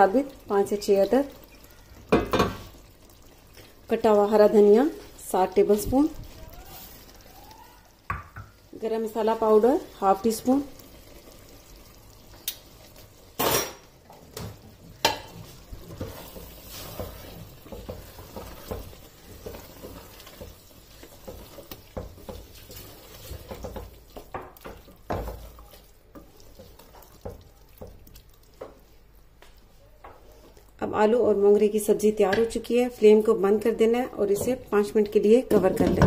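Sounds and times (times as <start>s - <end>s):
food sizzling faintly: 0.0s - 36.0s
wooden spoon scraping metal pot: 15.0s - 27.3s.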